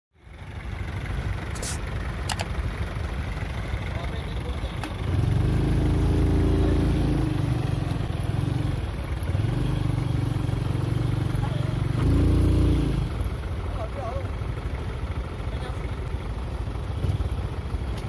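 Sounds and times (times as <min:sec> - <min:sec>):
sharp clicks: 0:01.6 - 0:02.5
tractor engine revving: 0:04.5 - 0:13.4.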